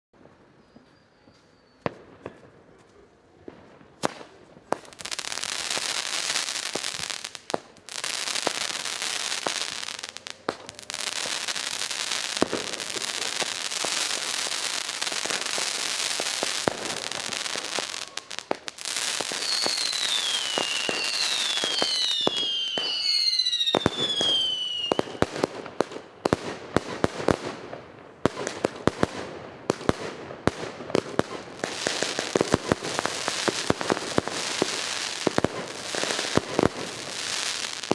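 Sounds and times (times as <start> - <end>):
firework crackling and pops: 3.4 - 37.9
falling firework whistles: 5.1 - 25.5.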